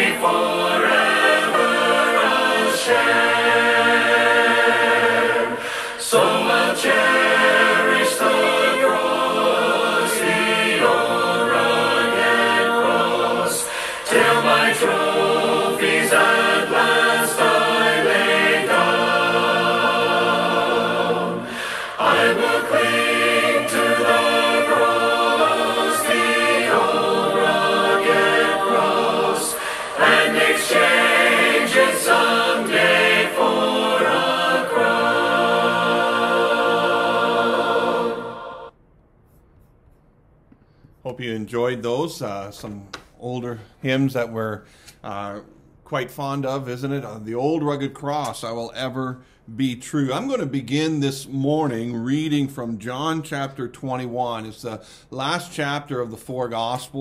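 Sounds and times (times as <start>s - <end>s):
choir singing a hymn: 0.0s - 38.8s.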